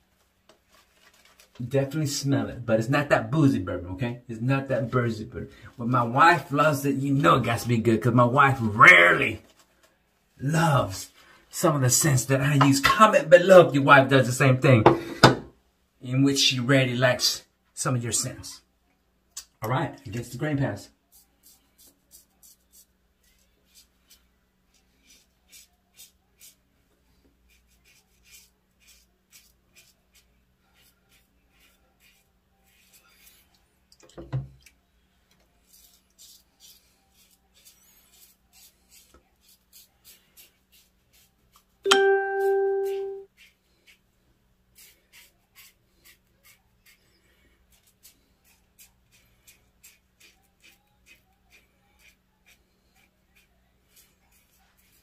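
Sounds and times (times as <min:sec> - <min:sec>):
razor scraping stubble: 0:27.5 - 0:33.6, 0:44.7 - 0:55.0.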